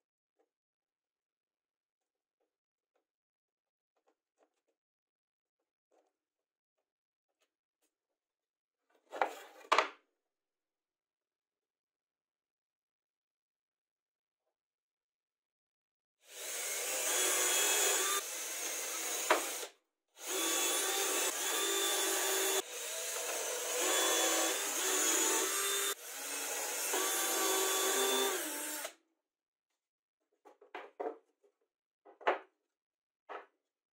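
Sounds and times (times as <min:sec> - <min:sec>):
cordless drill whirring: 0:16.3 - 0:29.0.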